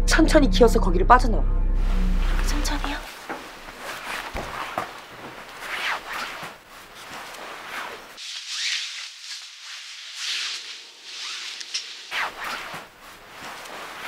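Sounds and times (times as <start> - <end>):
rustling and scraping on cardboard: 3.1 - 14.0.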